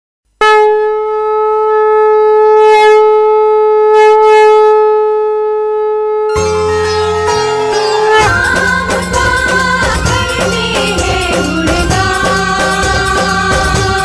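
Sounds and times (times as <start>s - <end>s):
conch shell blown: 0.4s - 8.9s
devotional music with bass: 6.3s - 14.0s.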